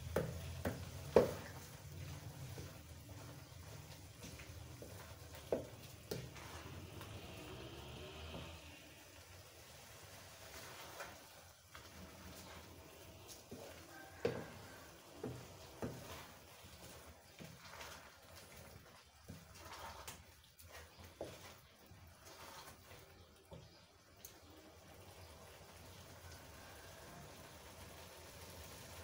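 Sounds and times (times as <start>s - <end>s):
spatula tapping pan: 0.0s - 7.2s, 13.2s - 17.8s
spatula stirring wet food: 0.0s - 29.0s.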